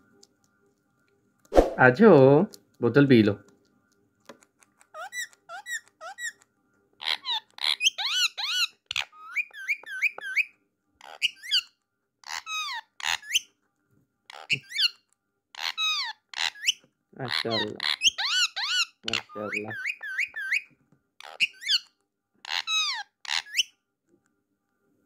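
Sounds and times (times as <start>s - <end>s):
parakeet squeaky calls: 4.9s - 6.4s, 7.0s - 13.5s, 14.3s - 23.8s.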